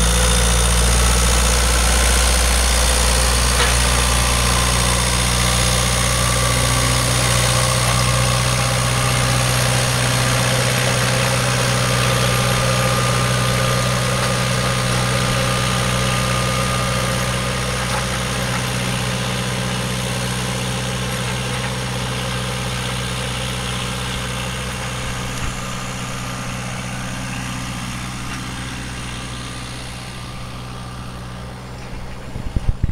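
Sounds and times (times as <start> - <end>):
tractor engine under load: 0.0 - 32.9.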